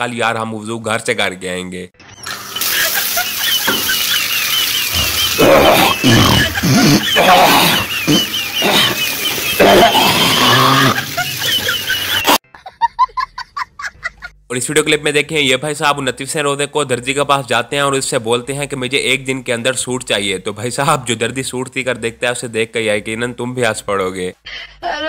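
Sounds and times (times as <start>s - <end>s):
water running from tap: 2.2s - 12.4s
man hawking and snorting: 5.0s - 9.0s, 9.6s - 11.2s.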